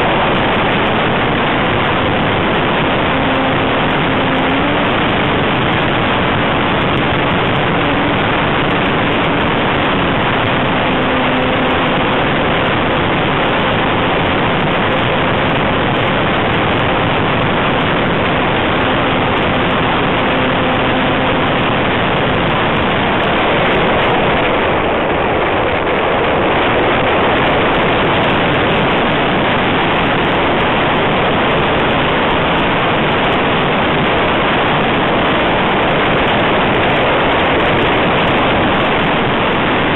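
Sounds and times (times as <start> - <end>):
faint model plane motor drone: 0.0 - 25.4
wind rushing over microphone: 0.0 - 39.9.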